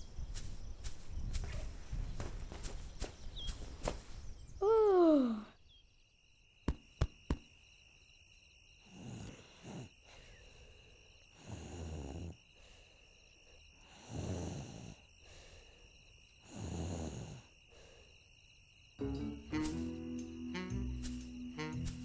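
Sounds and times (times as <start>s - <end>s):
child imitating snoring: 8.9s - 9.9s, 11.4s - 12.4s, 13.9s - 15.0s, 16.4s - 17.5s.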